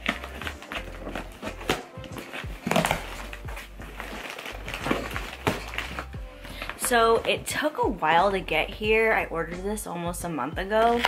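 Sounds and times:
packing tape ripping off box: 0:00.0 - 0:07.0
background music: 0:00.0 - 0:11.0.

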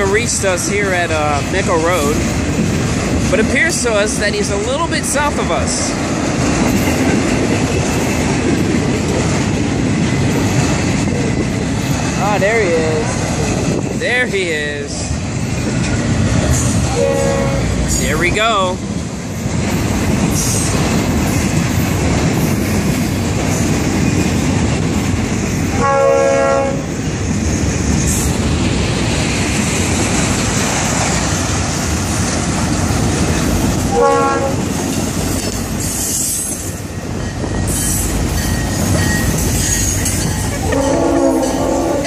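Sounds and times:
freight train wheels rumbling: 0:00.0 - 0:42.0
train horn: 0:16.9 - 0:17.8, 0:25.7 - 0:26.9, 0:33.9 - 0:34.6, 0:40.6 - 0:42.0.

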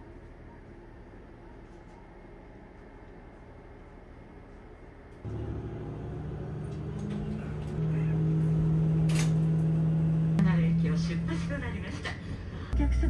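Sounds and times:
diesel railcar engine droning: 0:05.2 - 0:13.0.

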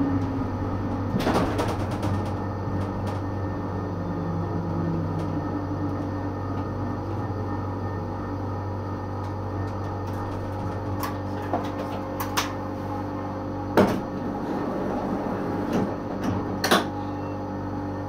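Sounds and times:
tram electrical equipment humming: 0:00.0 - 0:18.0.

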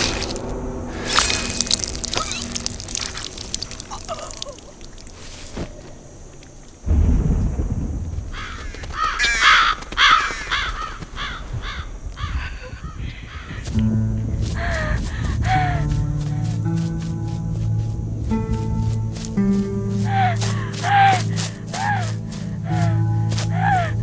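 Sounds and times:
sharp hit: 0:00.0 - 0:03.6
deep rumble of thunder: 0:06.8 - 0:09.2, 0:11.1 - 0:16.4
crows cawing: 0:08.3 - 0:13.8.

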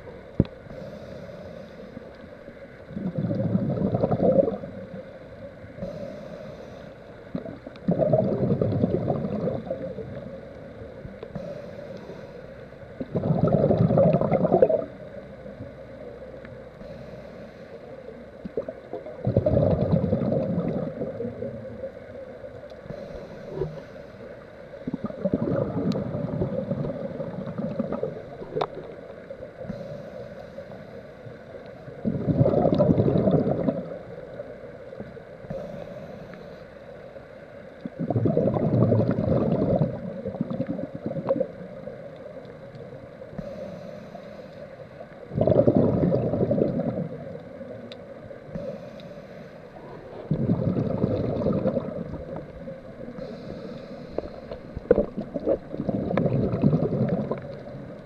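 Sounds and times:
regulator inhale hiss: 0:00.4 - 0:03.4, 0:04.6 - 0:07.7, 0:09.6 - 0:13.1, 0:14.9 - 0:19.0, 0:20.4 - 0:32.0, 0:33.8 - 0:37.7, 0:43.1 - 0:45.4, 0:46.2 - 0:55.4
exhale bubbling: 0:02.9 - 0:05.1, 0:07.3 - 0:10.4, 0:13.0 - 0:15.1, 0:16.8 - 0:21.9, 0:24.7 - 0:30.2, 0:31.8 - 0:34.2, 0:37.8 - 0:42.0, 0:45.2 - 0:47.9, 0:48.5 - 0:58.0.

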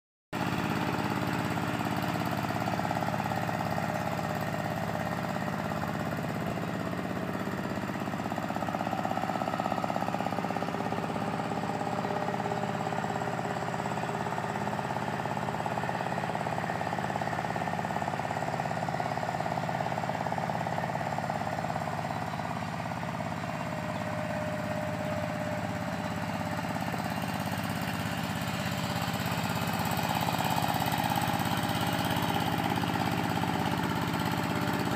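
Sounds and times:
diesel tractor engine running: 0:00.4 - 0:34.9.

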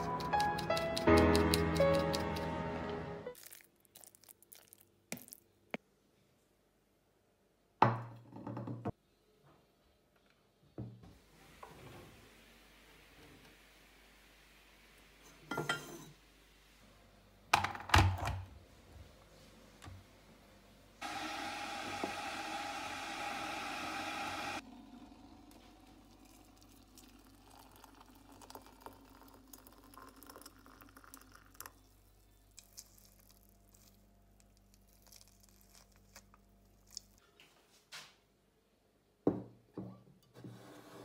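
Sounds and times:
ceramic mug clinking: 0:15.5 - 0:16.1
mug knocking on surface: 0:39.3 - 0:39.9.

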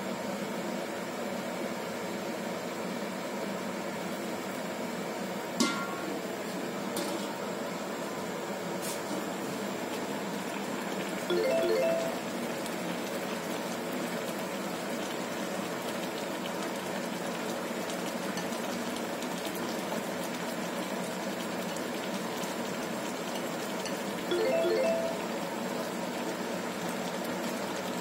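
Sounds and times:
soup boiling and bubbling: 0:12.2 - 0:24.3, 0:25.3 - 0:28.0.

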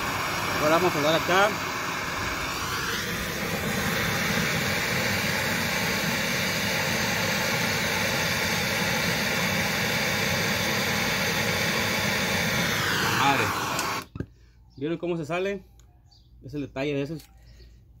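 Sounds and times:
gas torch hissing: 0:00.0 - 0:14.2.

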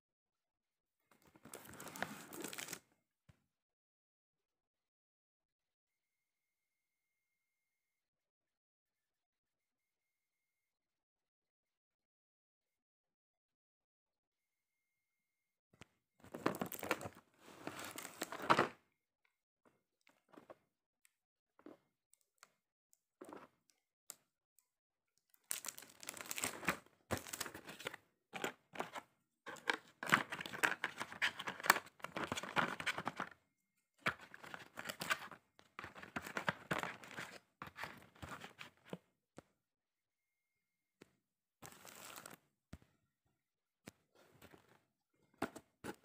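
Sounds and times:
plastic wrap tearing and crinkling: 0:25.5 - 0:27.7.

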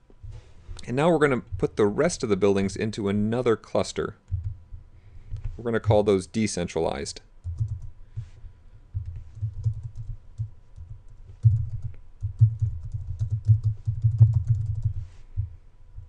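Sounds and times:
keyboard typing: 0:07.4 - 0:07.9, 0:09.0 - 0:15.0.

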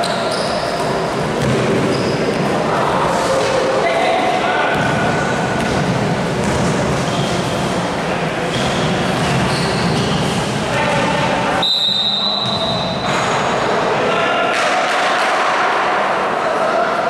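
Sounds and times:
sneaker squeaks: 0:00.0 - 0:03.4, 0:06.4 - 0:13.6
court sounds and voices: 0:00.0 - 0:17.0
referee whistle blast: 0:11.6 - 0:13.0.

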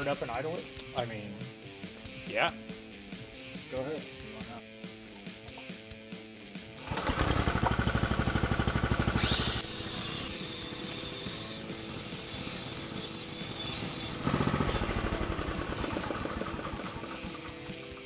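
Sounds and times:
go-kart engine chugging: 0:06.8 - 0:09.2, 0:14.2 - 0:18.0.

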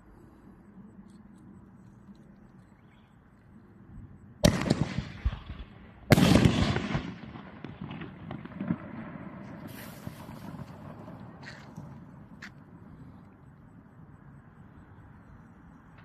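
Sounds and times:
fireworks bursts: 0:04.4 - 0:12.3
rapid firework crackle: 0:04.4 - 0:12.3.

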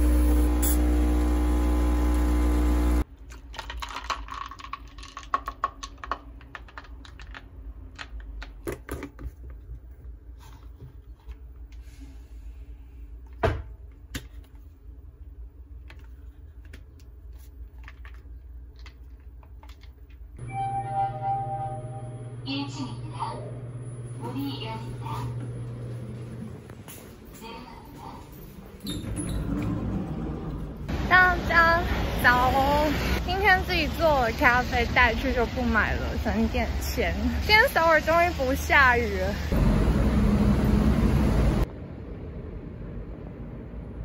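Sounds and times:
coffee machine pump buzzing: 0:00.0 - 0:03.0.

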